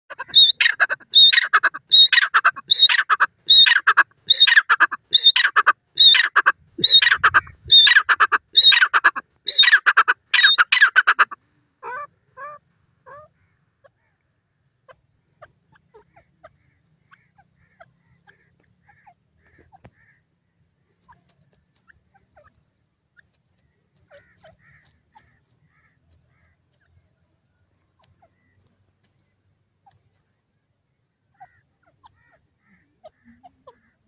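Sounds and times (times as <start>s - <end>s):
bird harsh call: 0.1s - 14.1s
faint bird chirps: 11.8s - 34.0s.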